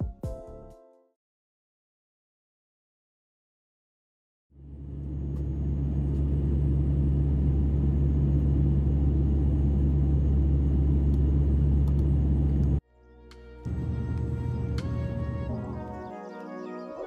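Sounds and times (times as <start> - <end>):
turboprop engines droning in cabin: 4.6 - 12.8, 13.6 - 16.1.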